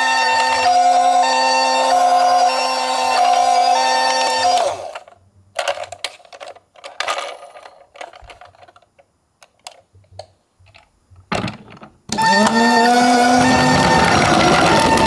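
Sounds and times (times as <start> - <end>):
toy electronic siren: 0.0 - 5.0, 12.1 - 15.0
plastic toy clicks and knocks: 4.9 - 12.6.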